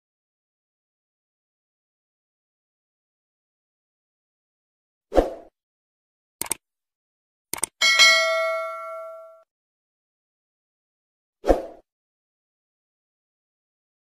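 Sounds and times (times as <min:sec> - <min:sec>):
bright bell ding: 0:07.8 - 0:09.4.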